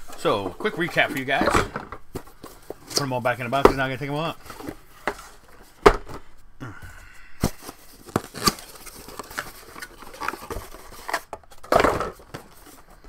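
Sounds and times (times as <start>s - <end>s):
boxes knocking and tapping: 0.1s - 6.3s.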